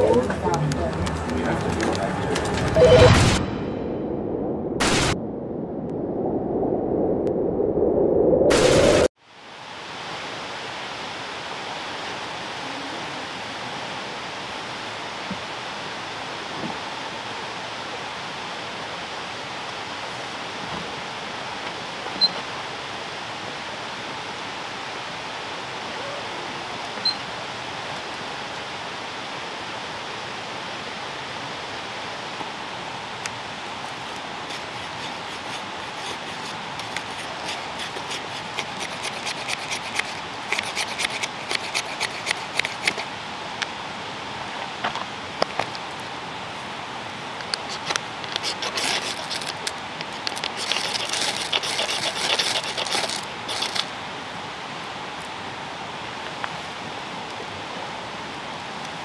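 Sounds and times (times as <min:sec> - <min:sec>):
running water rushing: 0:08.5 - 0:59.0
knife scraping wood: 0:34.5 - 0:43.1, 0:47.7 - 0:49.6, 0:50.2 - 0:53.9.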